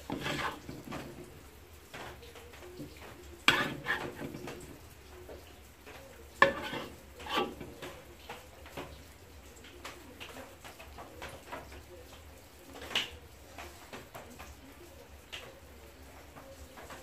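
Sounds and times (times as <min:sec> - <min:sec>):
metal spatula scraping wok: 0:00.0 - 0:01.3, 0:02.8 - 0:04.8, 0:06.4 - 0:07.9.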